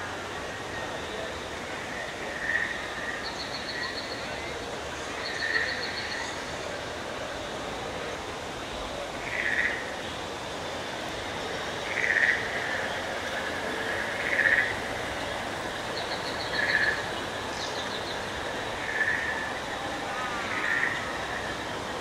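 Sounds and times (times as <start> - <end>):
background hiss: 0.0 - 22.0
frog-like animal call: 9.2 - 9.9, 11.8 - 12.8, 13.8 - 14.8, 18.8 - 19.5, 20.2 - 21.1.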